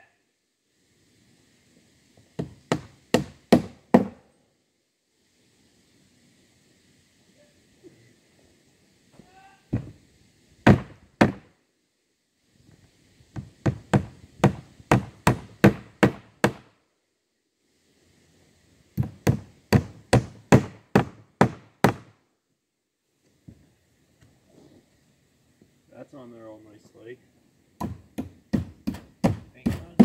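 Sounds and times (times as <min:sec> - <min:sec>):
hammer driving nails into wood: 0:02.4 - 0:04.2, 0:13.4 - 0:16.7.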